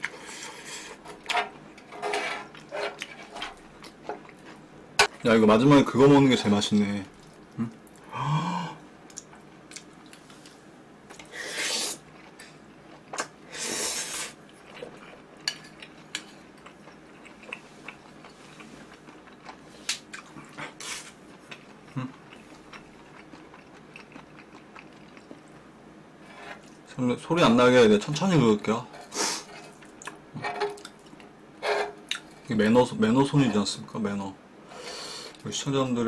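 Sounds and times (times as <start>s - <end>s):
plastic spoon scraping metal pan: 1.3s - 3.6s.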